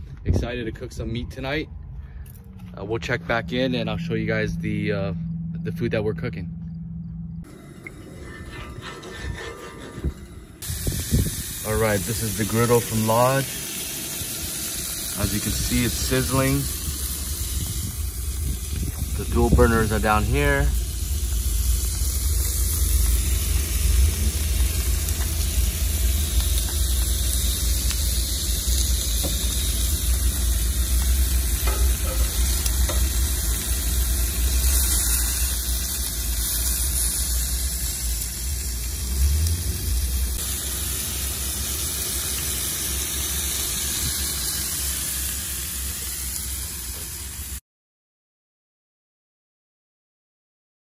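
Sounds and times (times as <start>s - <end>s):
low rumble of camp stove: 7.3s - 47.6s
meat and vegetables sizzling on griddle: 10.2s - 47.6s.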